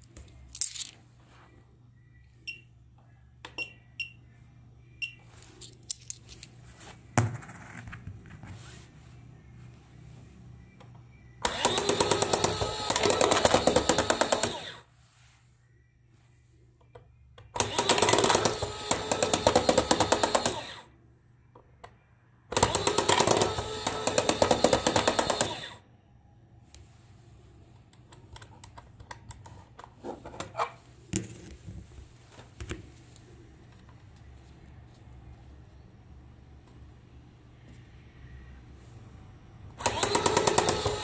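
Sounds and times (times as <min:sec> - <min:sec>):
small motor and plastic gears clattering: 0:11.4 - 0:14.8, 0:17.6 - 0:20.8, 0:22.5 - 0:25.8, 0:39.8 - 0:41.0.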